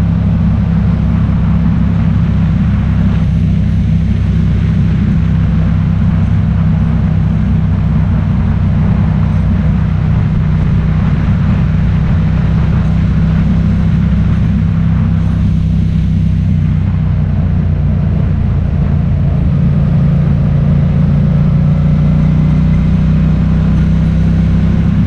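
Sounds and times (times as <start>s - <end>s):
vehicle engine droning: 0.0s - 25.0s
wind or road noise hiss: 2.1s - 21.3s.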